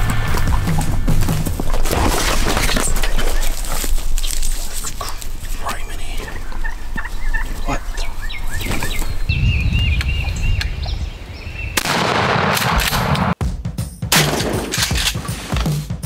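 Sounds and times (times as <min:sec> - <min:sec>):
turkey gobbling: 0:02.6 - 0:09.2
turkey yelps: 0:06.2 - 0:08.8.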